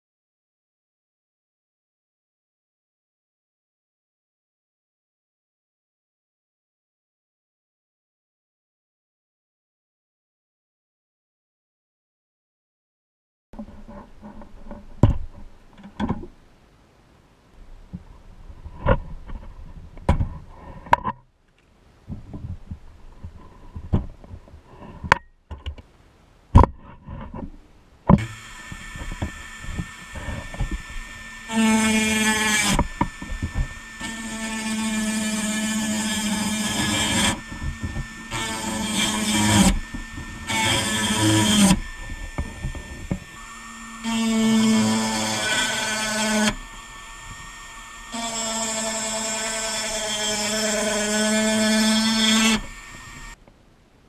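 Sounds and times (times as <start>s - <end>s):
rubbing and handling noise: 13.6s - 16.4s, 17.6s - 34.2s
rotary tool grinding metal: 28.2s - 53.4s.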